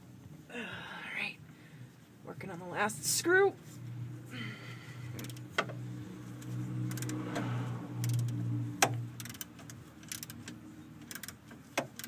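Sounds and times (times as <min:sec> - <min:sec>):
wrench clicking on metal: 0:06.8 - 0:07.4, 0:08.0 - 0:12.0.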